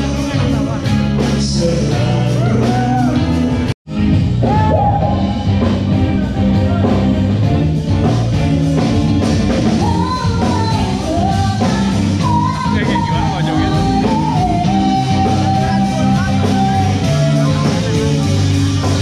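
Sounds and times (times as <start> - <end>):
person singing: 0.0 - 3.7, 9.7 - 19.0
rock band playing: 0.0 - 19.0.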